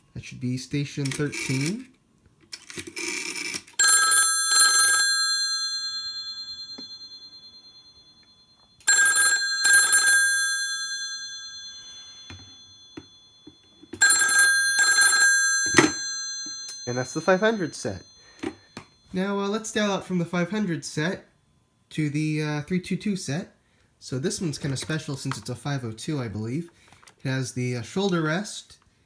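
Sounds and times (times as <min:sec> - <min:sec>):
telephone bells ringing: 0:02.9 - 0:19.4.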